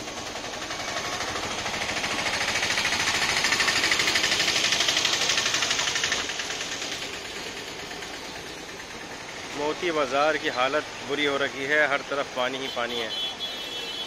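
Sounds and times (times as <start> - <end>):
engine clattering: 0.0 - 12.7.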